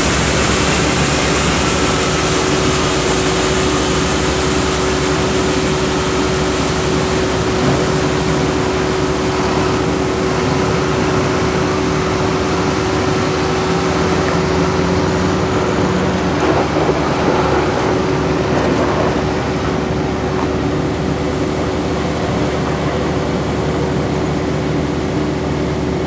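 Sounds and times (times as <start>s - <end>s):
constant droning tone: 0.0s - 26.0s
diesel construction machinery running: 0.0s - 26.0s
dump truck driving past: 0.0s - 26.0s.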